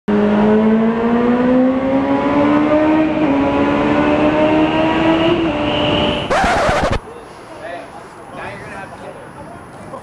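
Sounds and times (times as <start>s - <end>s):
motorcycle engine accelerating: 0.1s - 7.0s.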